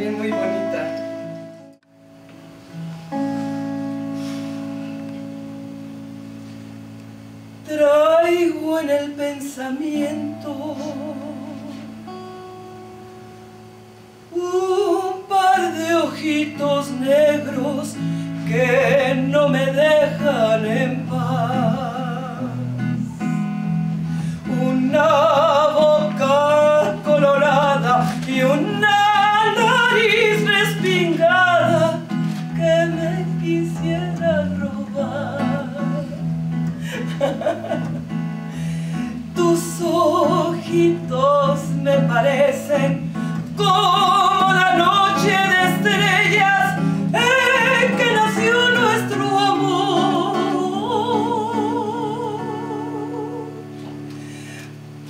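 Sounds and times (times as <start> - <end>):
archtop guitar chords: 0.0 - 55.0
woman singing with vibrato: 7.6 - 12.3, 14.3 - 23.2, 24.3 - 38.2, 38.9 - 54.1.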